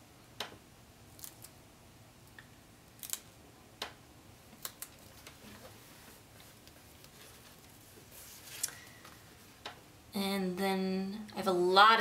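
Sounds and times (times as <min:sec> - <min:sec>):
paper rustling: 0:04.8 - 0:09.6.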